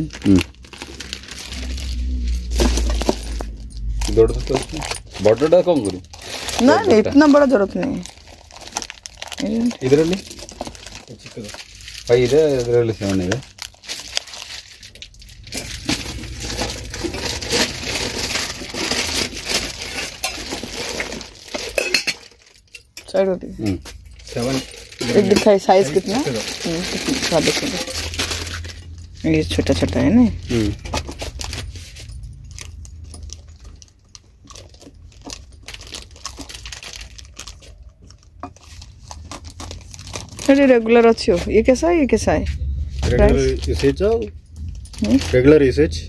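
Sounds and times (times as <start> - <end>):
rustling: 0.0 - 22.7
crinkling and rustling: 0.0 - 46.0
low rumble: 0.1 - 6.5, 14.2 - 20.2, 39.8 - 46.0.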